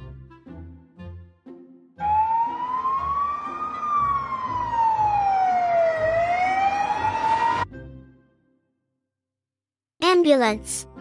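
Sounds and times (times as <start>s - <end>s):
ambulance siren wailing: 2.0s - 7.7s.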